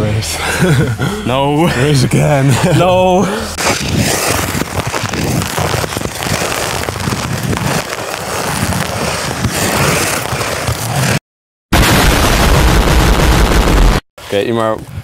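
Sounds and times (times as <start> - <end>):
ice skates scraping on ice: 3.2 - 11.2.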